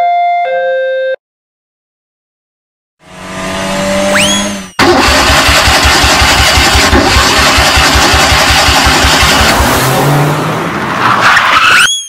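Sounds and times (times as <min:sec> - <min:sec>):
cartoon engine revving: 0:03.0 - 0:10.5
rising whistle-like glide: 0:04.0 - 0:04.8, 0:11.6 - 0:12.0.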